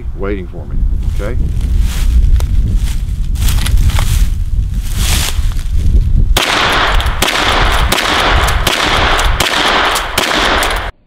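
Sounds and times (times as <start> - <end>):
rifle shots: 6.4 - 11.0.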